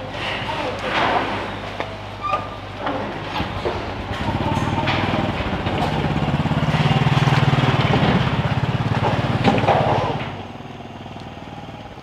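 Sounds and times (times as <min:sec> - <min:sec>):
small motorbike engine riding past: 0:04.0 - 0:12.0.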